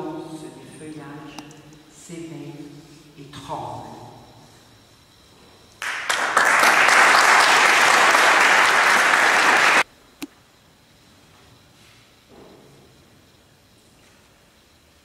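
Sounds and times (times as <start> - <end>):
audience applauding: 5.8 - 9.8.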